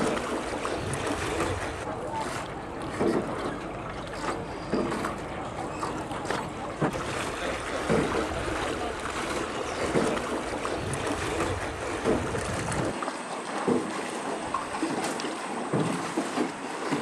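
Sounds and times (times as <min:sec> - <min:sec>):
water sloshing at oar strokes: 0:00.0 - 0:17.0
wind rumbling on microphone: 0:06.9 - 0:13.0.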